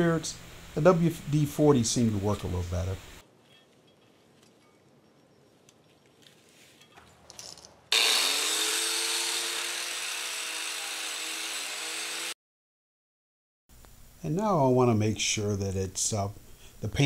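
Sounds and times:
angle grinder with wire brush: 7.9s - 12.4s.

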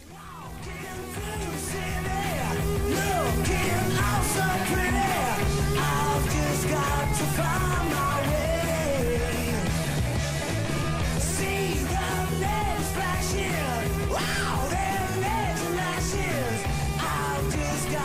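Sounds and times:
person singing: 0.0s - 9.8s, 11.1s - 18.0s
loud rock song: 0.0s - 18.0s.

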